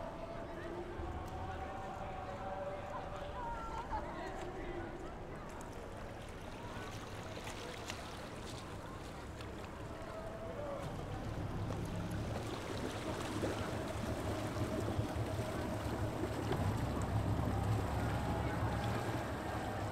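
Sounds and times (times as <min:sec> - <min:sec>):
motorboat engine humming: 0:10.8 - 0:19.9.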